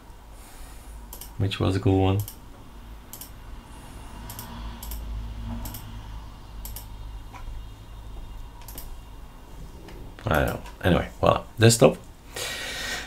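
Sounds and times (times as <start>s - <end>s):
low steady hum: 0.0s - 13.0s
computer mouse clicks: 1.1s - 1.4s, 2.2s - 2.4s, 3.1s - 3.4s, 4.2s - 5.9s, 6.6s - 7.5s, 8.6s - 9.0s.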